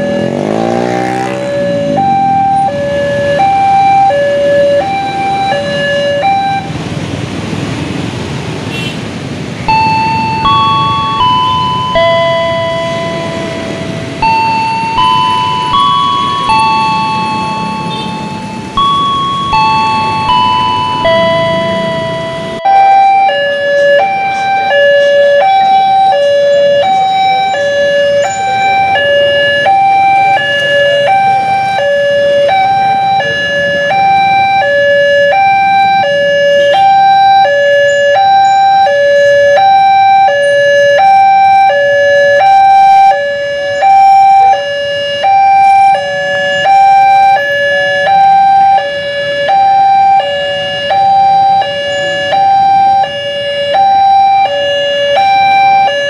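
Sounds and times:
level crossing two-tone alarm: 0.0 - 6.8, 9.7 - 56.0
faint road traffic: 0.0 - 56.0.

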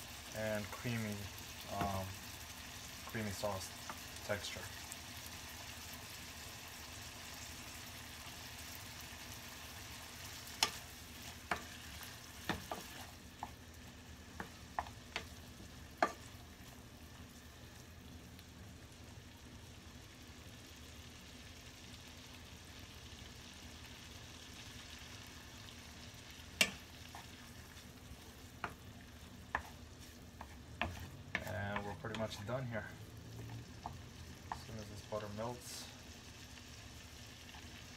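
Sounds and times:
mushrooms sizzling in frying pan: 0.0 - 37.9
spatula tapping pan: 10.4 - 13.6, 14.3 - 16.4, 26.5 - 27.8, 28.4 - 32.5, 33.5 - 34.9.

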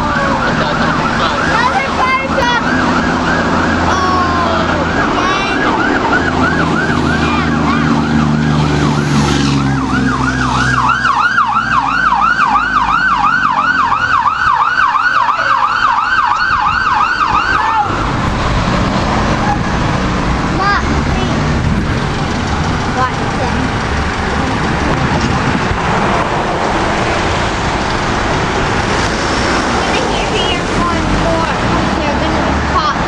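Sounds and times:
fire engine siren yelping: 0.0 - 20.7
truck engine running: 0.0 - 33.0.

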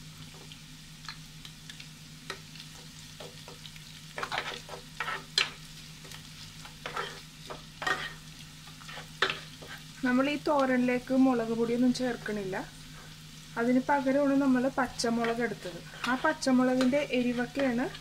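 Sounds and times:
oil sizzling in a pan: 0.0 - 18.0
spatula scraping and tapping: 2.3 - 9.8, 15.2 - 18.0.

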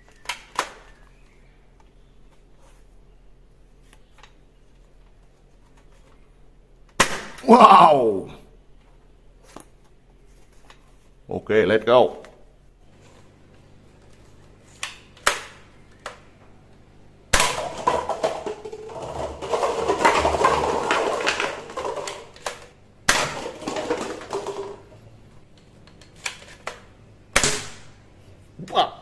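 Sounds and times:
cups and blocks crashing down: 17.3 - 25.0.

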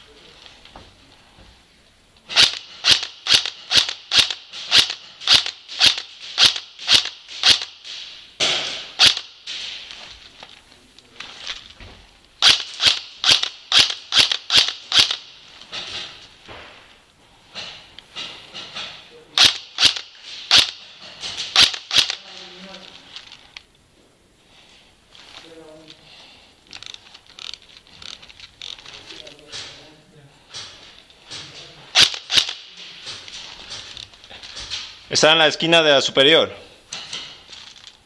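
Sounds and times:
airsoft rifle firing single shots: 2.3 - 9.8, 12.4 - 15.3, 19.4 - 20.8, 21.5 - 22.3.

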